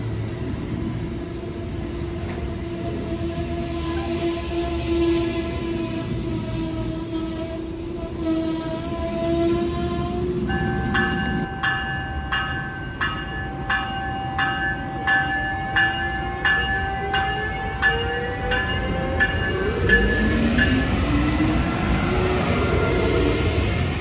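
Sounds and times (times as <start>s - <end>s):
train wheels rumbling on rails: 0.0s - 24.0s
locomotive bell ringing: 10.4s - 21.3s.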